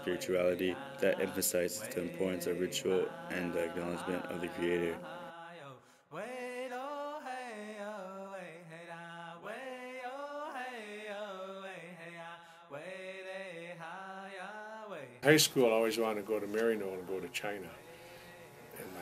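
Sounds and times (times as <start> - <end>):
person chanting slow melody: 0.0 - 5.8.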